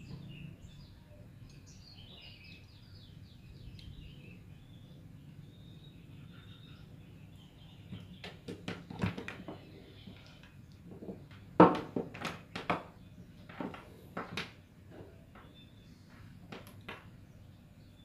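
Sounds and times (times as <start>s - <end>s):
plastic connectors knocking on table: 10.9s - 14.6s.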